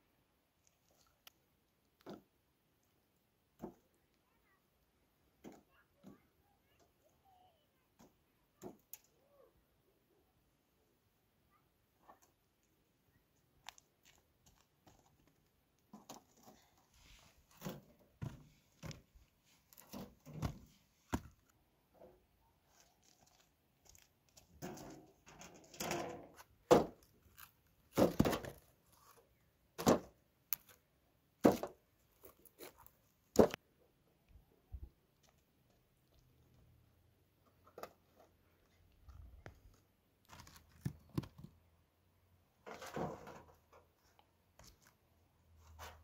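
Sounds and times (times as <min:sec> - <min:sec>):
dull thunks of dung cakes: 0:27.9 - 0:28.6.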